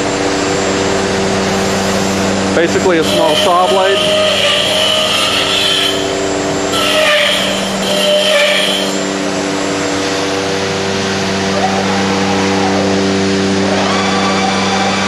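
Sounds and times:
router machine humming: 0:00.0 - 0:14.0
saw blade hissing through wood: 0:01.5 - 0:09.1.

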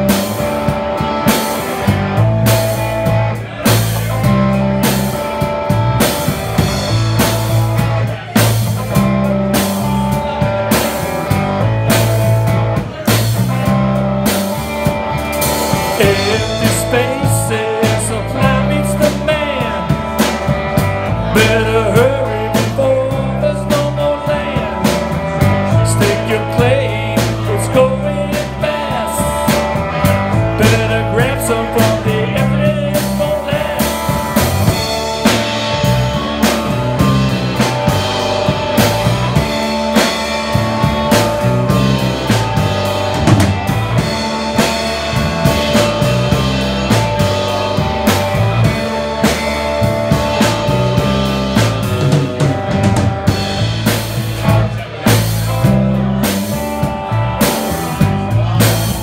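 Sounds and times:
rock band playing: 0:00.0 - 0:59.0
man singing: 0:15.4 - 0:37.7, 0:54.2 - 0:59.0.

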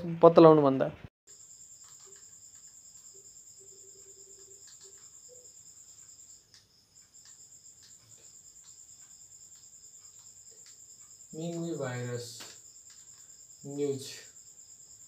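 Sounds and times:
crickets chirping: 0:01.3 - 0:15.0
soft clicks: 0:04.4 - 0:05.2, 0:06.0 - 0:11.7.

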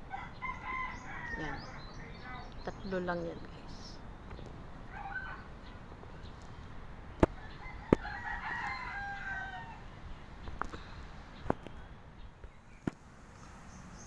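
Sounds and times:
rooster crowing: 0:00.1 - 0:01.9, 0:04.9 - 0:05.5, 0:07.4 - 0:09.9.

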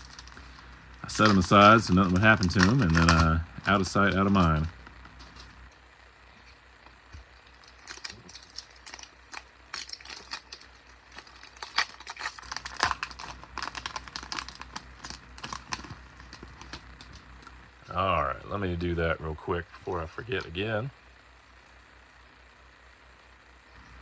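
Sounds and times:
foil wrappers crinkling: 0:00.0 - 0:05.6, 0:06.4 - 0:17.5.

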